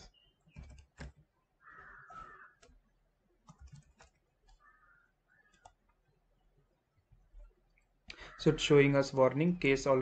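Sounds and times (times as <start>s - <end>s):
keyboard keystrokes: 0.4s - 1.3s, 3.4s - 4.7s
mouse clicks: 3.4s - 6.0s.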